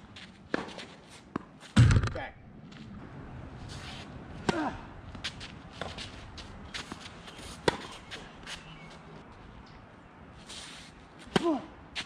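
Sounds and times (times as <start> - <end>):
tennis ball bouncing: 7.6 - 8.0
tennis ball hit by rackets: 11.2 - 11.7.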